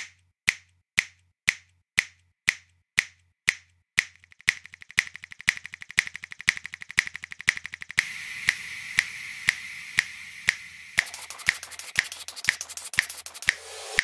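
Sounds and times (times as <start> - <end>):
click percussion beat: 1.5 - 14.0
steady hiss: 8.0 - 14.0.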